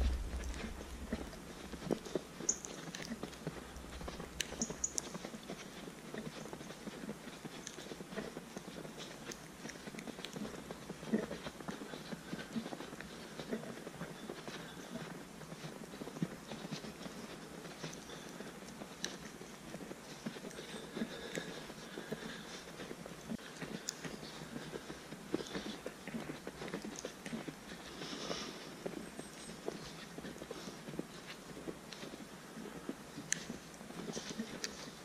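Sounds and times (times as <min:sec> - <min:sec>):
footsteps crunching in snow: 0:00.0 - 0:35.0.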